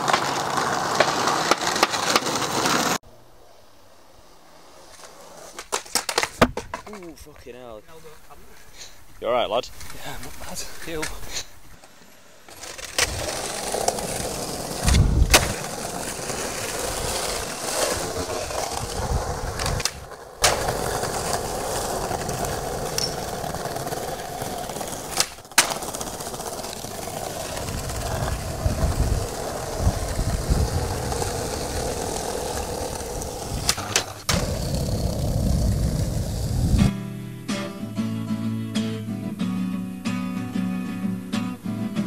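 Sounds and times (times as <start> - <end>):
skateboard popping and landing: 0.0 - 3.0, 4.8 - 7.2, 12.5 - 36.9
skateboard wheels rolling on paving: 0.0 - 37.0.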